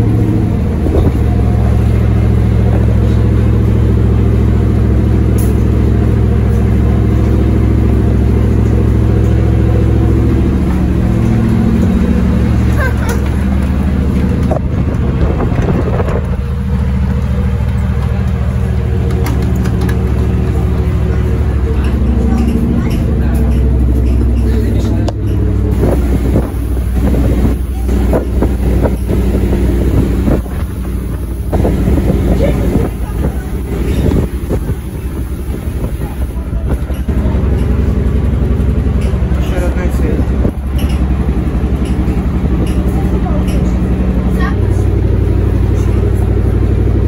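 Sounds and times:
bus engine running: 0:00.0 - 0:47.0
wind on microphone: 0:00.6 - 0:01.7, 0:14.2 - 0:17.0, 0:25.7 - 0:37.1
knocks and rattles: 0:08.6 - 0:25.8.

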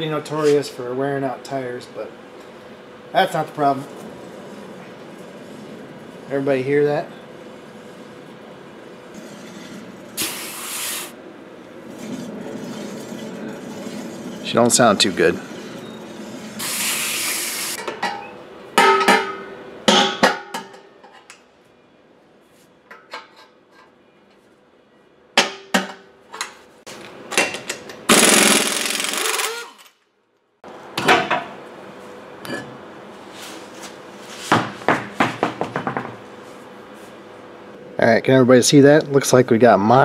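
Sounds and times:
air impact wrench hammering: 0:28.1 - 0:29.8.

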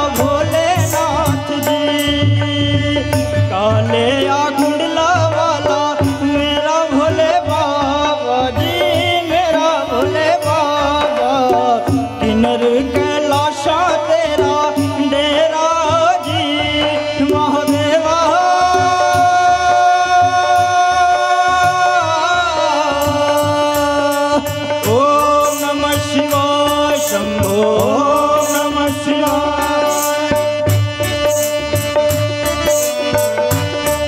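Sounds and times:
man singing devotional song: 0:00.0 - 0:34.0
tabla: 0:00.0 - 0:34.0
electronic keyboard: 0:22.9 - 0:34.0.

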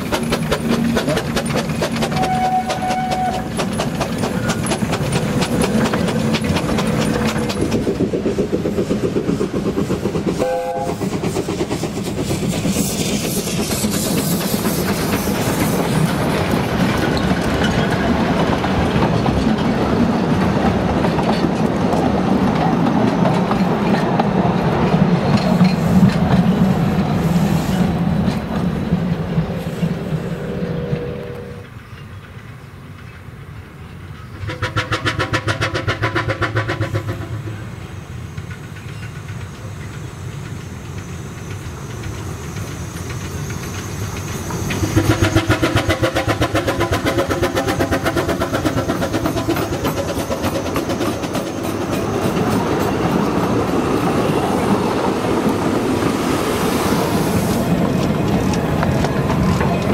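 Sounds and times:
steam hissing: 0:00.0 - 0:19.0, 0:25.0 - 0:31.0, 0:34.1 - 0:59.9
steam locomotive exhaust beats: 0:00.0 - 0:59.9
train rumbling past: 0:00.0 - 0:59.9
train wheels on rails: 0:00.0 - 0:59.9.

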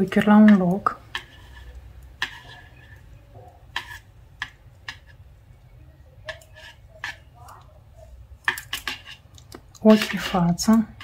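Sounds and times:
metal knitting needles clicking: 0:06.2 - 0:07.7, 0:08.4 - 0:10.9.

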